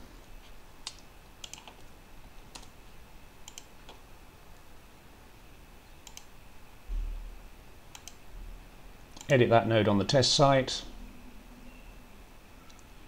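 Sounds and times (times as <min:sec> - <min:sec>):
computer keys and mouse clicks: 0:00.8 - 0:01.9, 0:02.5 - 0:02.8, 0:03.4 - 0:04.0, 0:06.0 - 0:06.3, 0:07.9 - 0:08.2, 0:09.1 - 0:09.4.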